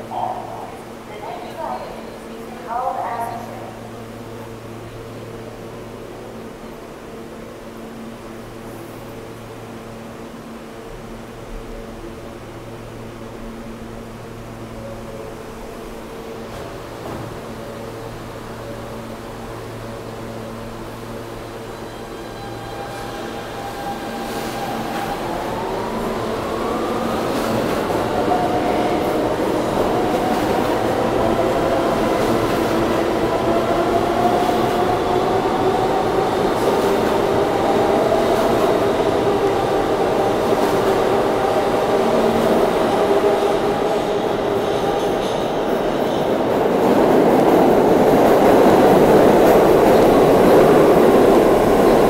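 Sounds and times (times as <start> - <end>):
another train running: 0.0 - 52.0
subway train motors whining: 0.0 - 52.0.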